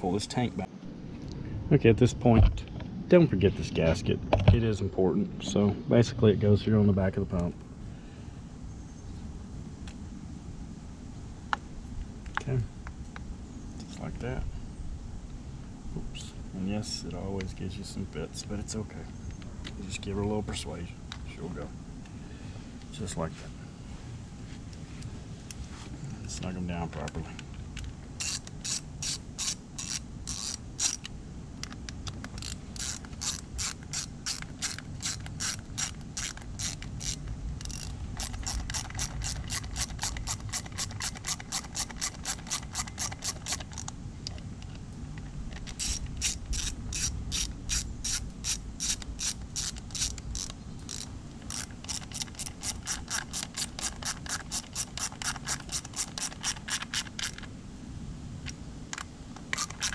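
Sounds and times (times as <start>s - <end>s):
ratchet wrench clicking: 28.2s - 31.8s, 32.4s - 43.9s, 45.6s - 57.5s, 59.0s - 59.9s.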